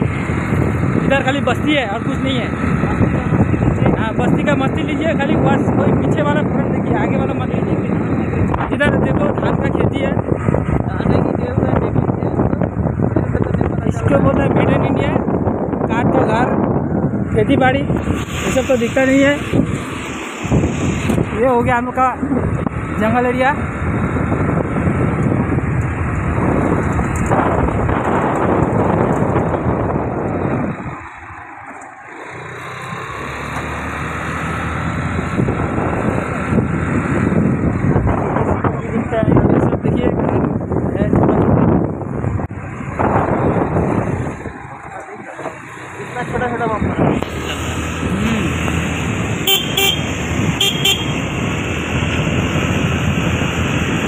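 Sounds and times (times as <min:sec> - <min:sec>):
engine hum: 0:00.0 - 0:54.0
wind and road noise: 0:00.0 - 0:54.0
horn beeping: 0:49.4 - 0:51.3.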